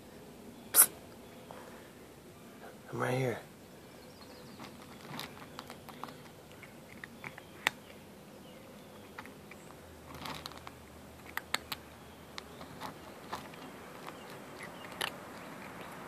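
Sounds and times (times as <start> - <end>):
cat crunching kibble in metal bowl: 4.6 - 7.9, 9.0 - 16.0.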